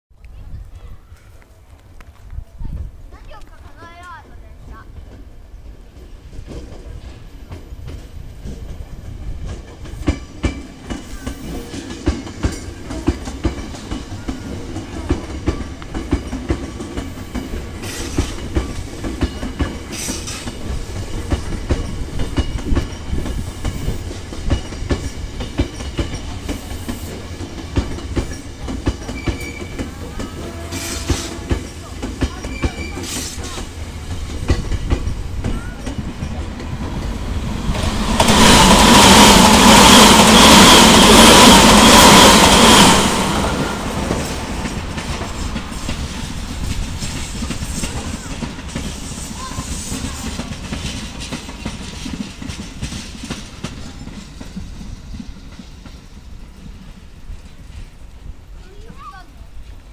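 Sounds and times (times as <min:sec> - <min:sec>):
train rumbling slowly by: 0:00.2 - 0:59.9
wheels clacking over rail joints: 0:01.2 - 0:59.9
high wheel squeals: 0:29.1 - 0:31.4.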